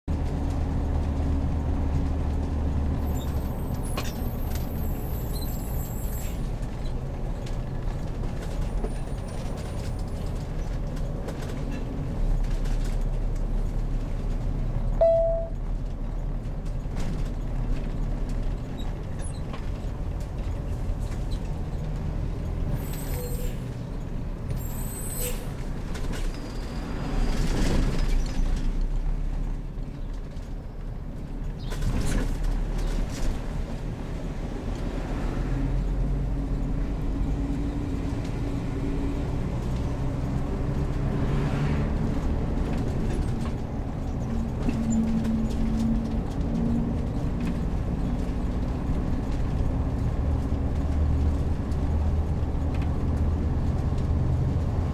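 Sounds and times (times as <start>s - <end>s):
motorhome engine low rumble: 0.1s - 54.9s
short beep: 15.0s - 15.6s.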